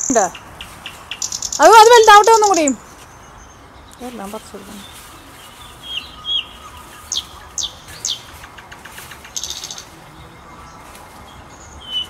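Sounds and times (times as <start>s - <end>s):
bird high trill: 0.0s - 3.0s, 9.3s - 9.9s
birds chirping: 0.0s - 12.0s.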